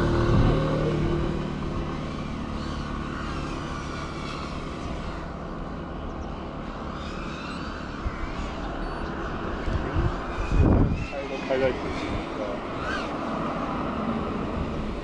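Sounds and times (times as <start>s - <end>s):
scooter engine going away: 0.0s - 5.6s
distant drone motors whining: 0.0s - 15.0s.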